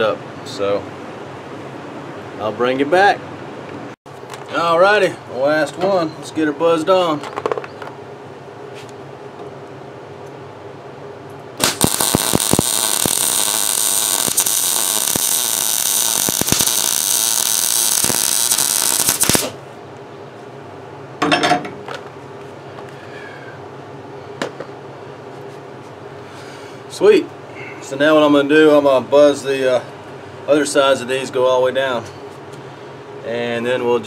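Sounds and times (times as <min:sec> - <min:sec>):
welder arc crackling: 0:11.6 - 0:19.6.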